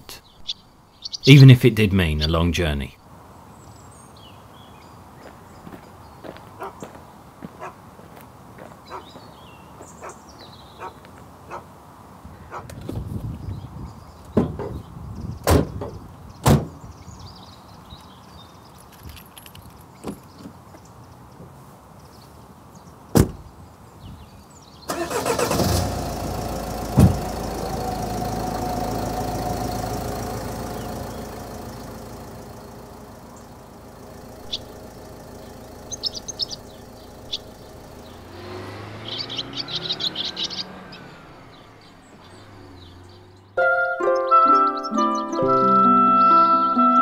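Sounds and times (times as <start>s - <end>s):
small birds chirping: 0.0s - 25.4s, 26.8s - 46.5s
swallows twittering: 0.1s - 2.4s, 29.4s - 43.6s
van door slamming: 15.4s - 16.8s, 23.1s - 23.5s, 26.8s - 28.0s
diesel engine starting and pulling away: 24.8s - 47.0s.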